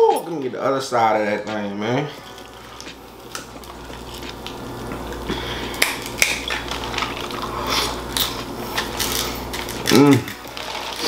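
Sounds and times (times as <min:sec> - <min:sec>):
plastic bags crinkling: 0:02.2 - 0:11.0
crab shells cracking: 0:02.8 - 0:11.0.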